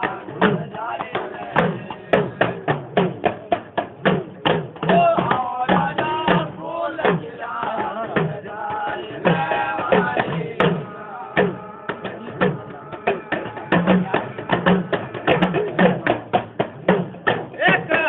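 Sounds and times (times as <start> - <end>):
person singing devotional song: 0.0 - 3.6, 4.4 - 18.0
drum beat: 0.0 - 18.0.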